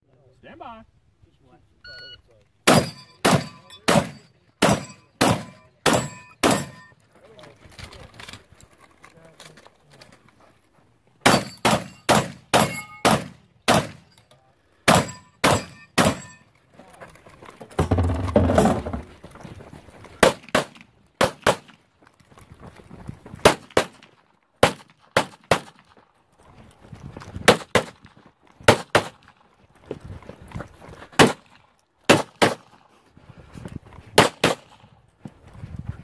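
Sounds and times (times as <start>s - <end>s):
shotgun shots: 2.7s - 6.8s, 11.2s - 14.1s, 14.9s - 16.3s, 20.2s - 21.8s, 23.4s - 25.8s, 27.5s - 28.0s, 28.7s - 29.2s, 32.1s - 32.8s, 34.2s - 34.8s
pistol shots: 2.7s - 6.9s, 11.2s - 14.1s, 14.9s - 16.4s, 20.2s - 21.8s, 23.4s - 25.8s, 27.5s - 28.0s, 28.7s - 29.2s, 32.1s - 32.8s, 34.2s - 34.8s.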